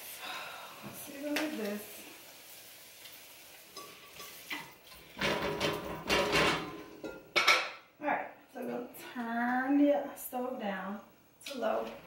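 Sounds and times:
cookware clattering on stovetop: 3.8s - 7.8s.

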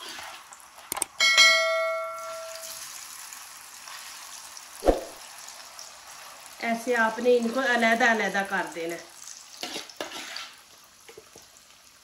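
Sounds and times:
potatoes sizzling in oil: 0.0s - 0.9s, 2.2s - 12.0s
bell ding: 1.2s - 2.7s.

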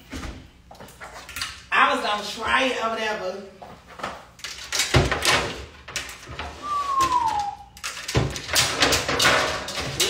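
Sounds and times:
rustling and clatter: 7.8s - 10.0s.

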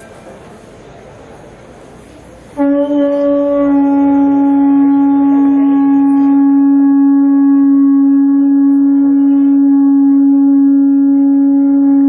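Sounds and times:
conch shell horn note: 2.6s - 12.0s.

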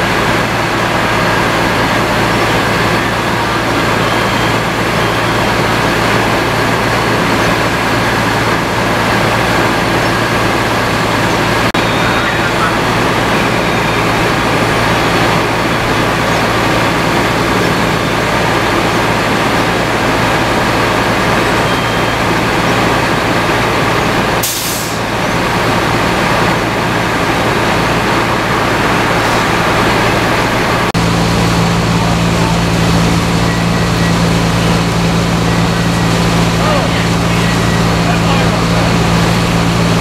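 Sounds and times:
fire truck engine running: 0.0s - 40.0s
short hiss: 24.4s - 25.0s.

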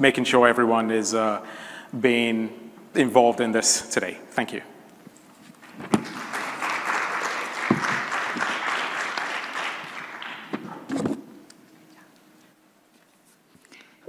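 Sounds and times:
audience applauding: 5.6s - 10.9s.

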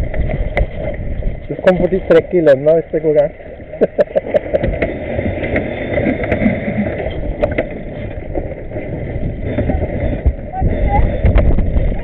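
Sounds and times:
water noise: 0.0s - 12.0s
wind: 0.0s - 12.0s
rigging clicks and knocks: 4.4s - 12.0s.

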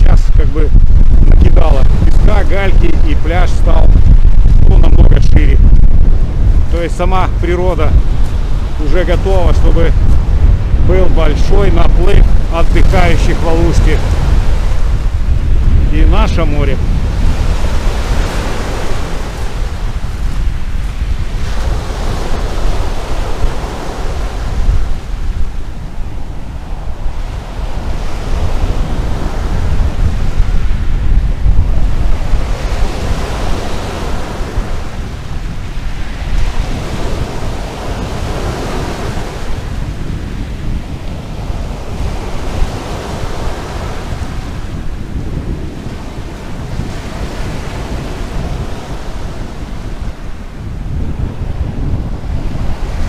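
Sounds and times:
small sea waves breaking on beach: 0.0s - 53.0s
wind buffeting microphone: 0.0s - 53.0s.

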